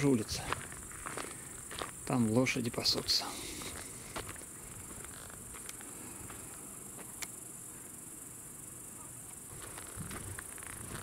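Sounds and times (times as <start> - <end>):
footsteps on dirt: 0.0 - 7.2, 9.5 - 11.0
insects chirring: 0.0 - 11.0.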